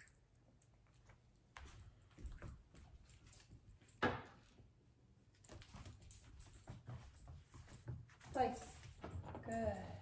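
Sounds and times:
faint footsteps on wooden floor: 0:05.6 - 0:10.0.

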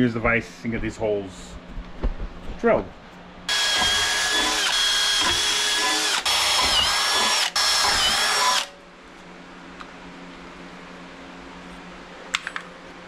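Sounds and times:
cordless drill drilling steel: 0:03.5 - 0:08.7.

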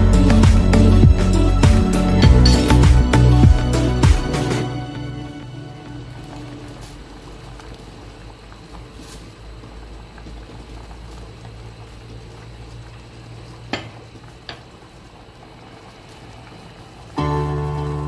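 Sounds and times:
porridge bubbling in a saucepan: 0:05.5 - 0:18.0.

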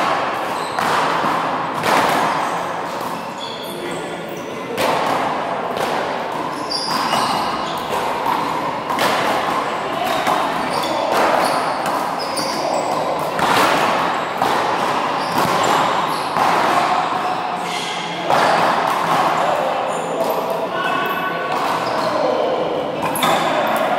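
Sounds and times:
ball hitting wall and floor: 0:00.0 - 0:03.3, 0:04.7 - 0:20.5
sneaker squeaks: 0:00.3 - 0:04.8, 0:06.4 - 0:23.9.

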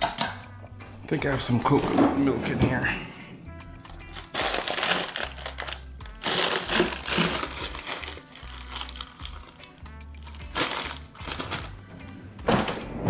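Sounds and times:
background music: 0:00.0 - 0:13.0
plastic bag crinkling: 0:04.0 - 0:11.8.

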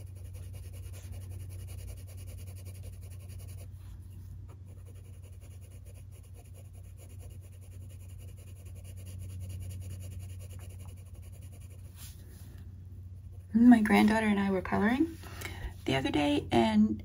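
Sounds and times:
pencil scratching on paper: 0:00.0 - 0:12.2
steady low hum: 0:00.0 - 0:17.0.

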